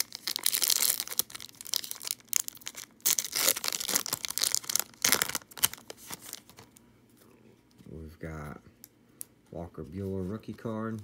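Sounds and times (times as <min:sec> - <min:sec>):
foil wrapper tearing and crinkling: 0:00.0 - 0:06.7.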